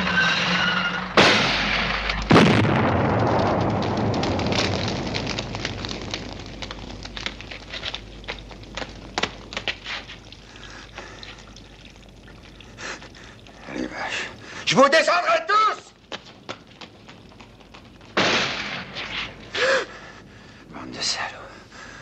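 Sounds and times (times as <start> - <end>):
explosions: 0.0 - 9.8, 18.1 - 19.6
rumble with crackling and pops: 0.0 - 22.0.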